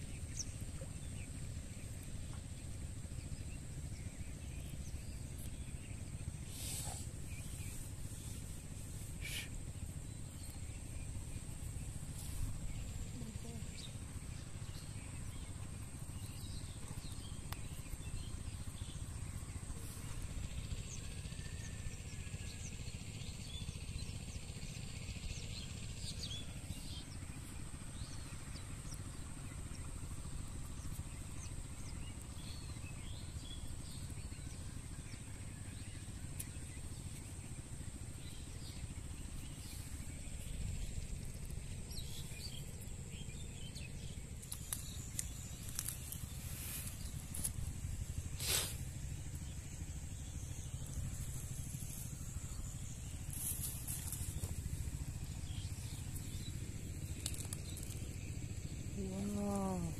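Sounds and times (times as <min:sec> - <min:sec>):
low rumble: 0:37.0 - 0:59.9.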